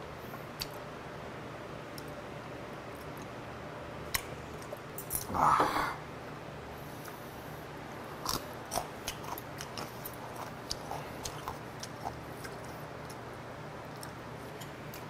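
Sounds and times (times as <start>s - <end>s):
person chewing crunchy food: 8.2s - 13.3s.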